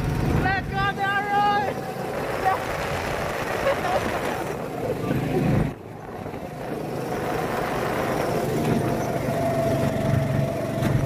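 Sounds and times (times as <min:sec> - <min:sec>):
go-kart engines droning: 0:00.0 - 0:11.0
high engine whine: 0:00.0 - 0:11.0.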